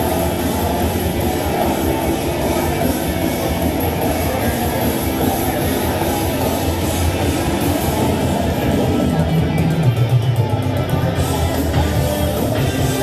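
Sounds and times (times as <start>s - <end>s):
rock music: 0.0s - 13.0s.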